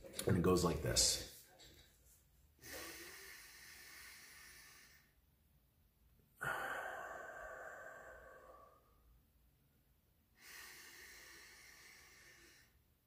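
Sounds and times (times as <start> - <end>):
person inhaling deeply: 2.6 - 5.2, 6.4 - 9.0, 10.4 - 12.8
person exhaling through mouth: 6.4 - 9.0.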